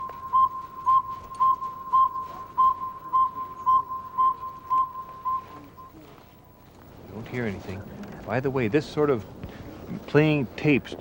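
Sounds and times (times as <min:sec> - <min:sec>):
recorded owl whistled toots: 0:00.0 - 0:06.1.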